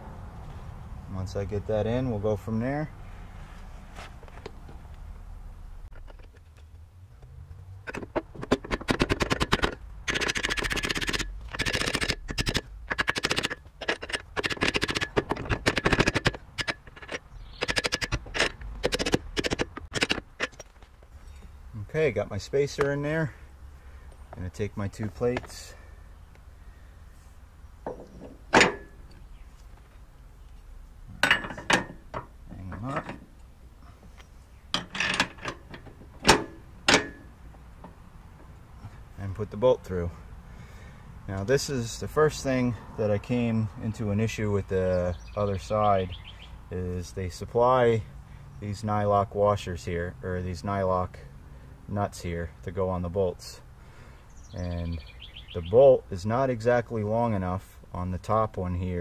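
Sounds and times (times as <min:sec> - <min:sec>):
metal brackets clinking: 0:07.8 - 0:21.5, 0:27.8 - 0:29.2, 0:31.1 - 0:33.5, 0:34.7 - 0:38.9
ratchet wrench clicking: 0:08.6 - 0:20.6.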